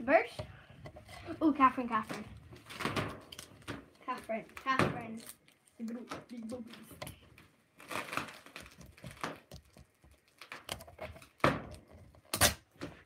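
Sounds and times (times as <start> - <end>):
punch balloon rustling: 6.0 - 13.0.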